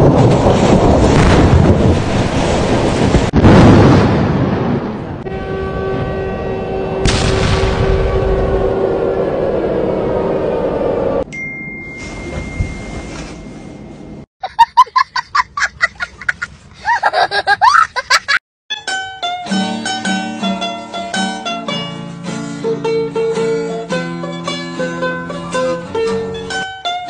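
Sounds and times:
boy laughing hard: 14.4s - 18.4s
plucked instrumental music: 18.7s - 27.0s.

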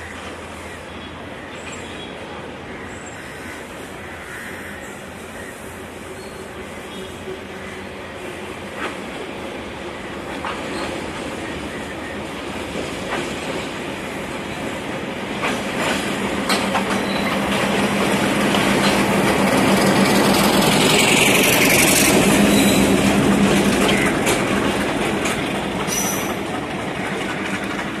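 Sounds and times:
diesel locomotive passing: 0.0s - 28.0s
wheels clicking over rail joints: 15.4s - 28.0s.

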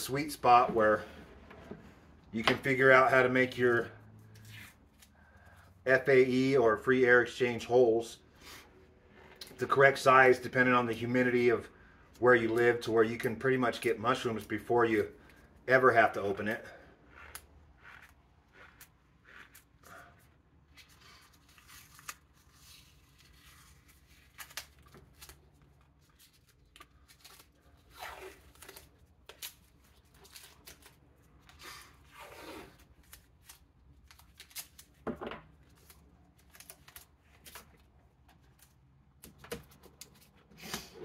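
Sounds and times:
tape rustling and clicks: 20.7s - 40.9s
tape ripping: 20.8s - 35.0s.

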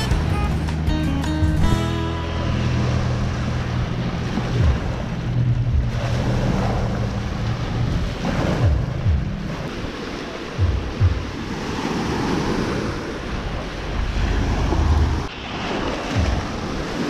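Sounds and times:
small waves breaking on sand: 2.4s - 17.0s
wind buffeting microphone: 2.7s - 17.0s.

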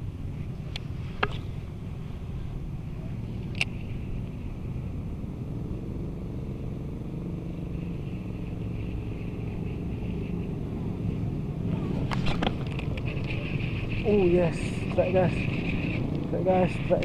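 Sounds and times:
fishing reel gears whirring: 12.2s - 17.0s.

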